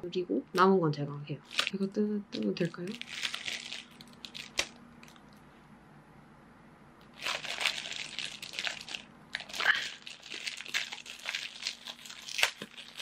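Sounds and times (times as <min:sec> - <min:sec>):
plastic packaging crinkling: 0:01.4 - 0:01.8, 0:02.4 - 0:05.4, 0:07.0 - 0:13.0.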